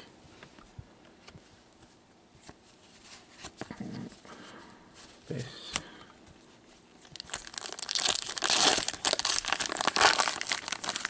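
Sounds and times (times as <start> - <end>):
wrapper crinkling: 7.0 - 11.0.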